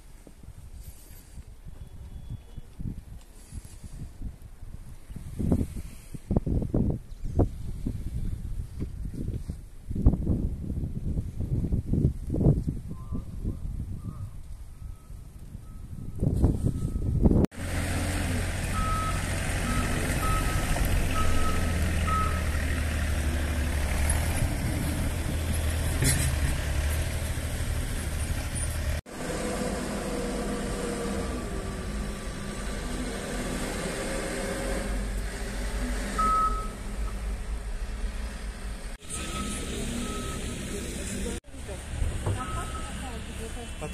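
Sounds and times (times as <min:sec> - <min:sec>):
heavy vehicle engine rumbling: 0:14.8 - 0:43.9
car traffic: 0:15.6 - 0:43.9
short high beeps: 0:36.2 - 0:36.8, 0:39.0 - 0:40.6.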